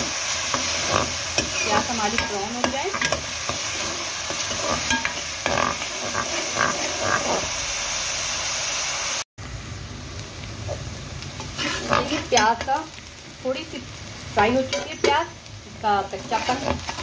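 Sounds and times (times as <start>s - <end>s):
onions sizzling in hot oil: 0.0s - 17.0s
metal ladle scraping pan: 0.5s - 7.6s, 11.4s - 12.7s, 16.2s - 17.0s.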